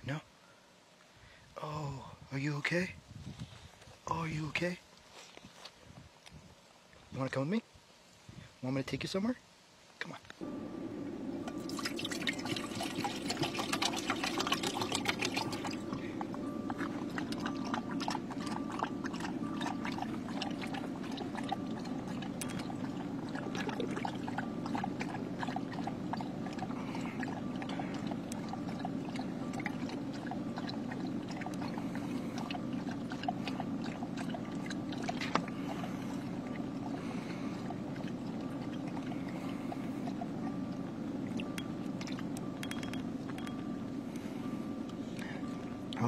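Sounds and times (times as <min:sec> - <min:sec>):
steady low hum: 0:10.4 - 0:46.0
puppy lapping water: 0:10.5 - 0:43.5
water splashing into bowl: 0:11.4 - 0:39.3.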